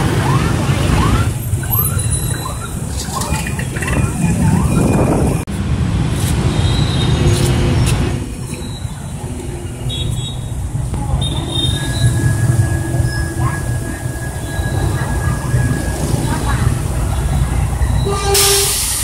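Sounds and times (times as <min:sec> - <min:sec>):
high whine: 0:08.0 - 0:18.2
diesel engine idling: 0:08.2 - 0:19.0.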